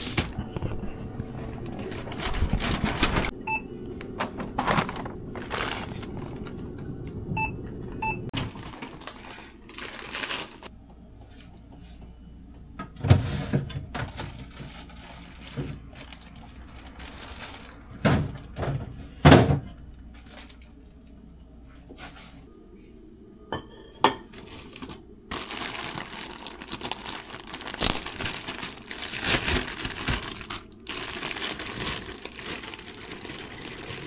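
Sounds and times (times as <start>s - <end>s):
fridge opening: 0.0s - 3.4s
room hum: 0.0s - 34.0s
bottles and containers moved: 1.7s - 6.6s
checkout beeps: 3.4s - 4.2s, 7.3s - 8.3s.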